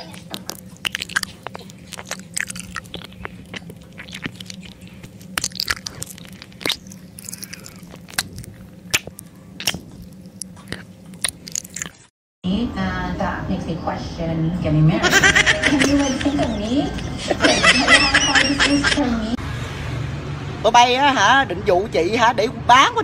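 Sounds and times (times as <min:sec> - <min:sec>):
dog biting a crunchy pepper: 0:00.0 - 0:12.1.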